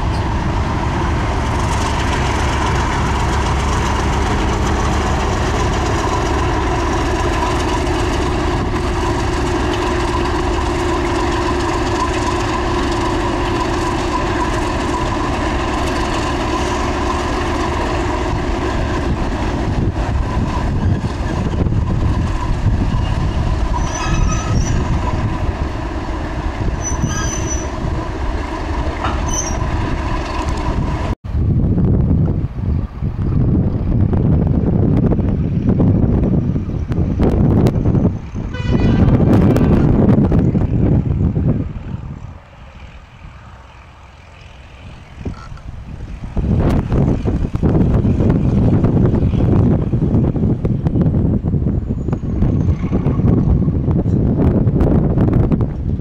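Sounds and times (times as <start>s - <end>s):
wheels clicking on track: 0.0s - 31.2s, 33.2s - 56.0s
diesel locomotive engine hum: 0.0s - 56.0s
wheel squeals: 20.2s - 25.3s, 26.7s - 27.9s, 29.0s - 30.8s, 51.6s - 53.5s.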